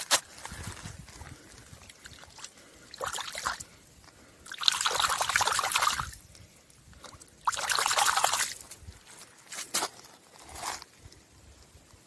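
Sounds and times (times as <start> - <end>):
stone splashing in shallow water: 7.4 - 8.6.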